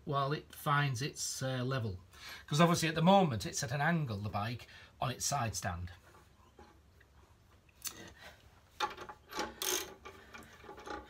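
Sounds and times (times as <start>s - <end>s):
ratchet wrench metal clicks: 9.3s - 10.2s.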